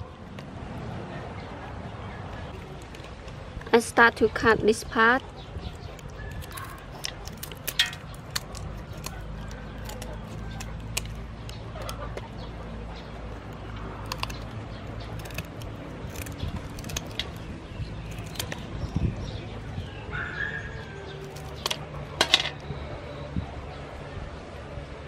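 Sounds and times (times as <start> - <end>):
scissors snipping shells: 5.7 - 19.0, 21.2 - 22.6.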